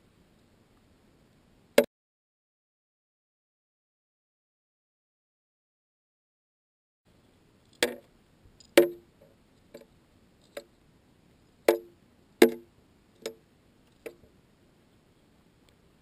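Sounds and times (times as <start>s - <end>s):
sharp underwater clicks and knocks: 7.7s - 9.1s, 11.7s - 14.3s.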